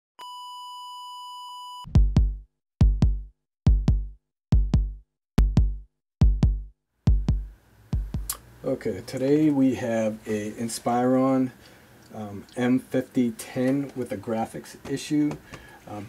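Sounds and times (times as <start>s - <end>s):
low double thumps: 1.9s - 8.3s.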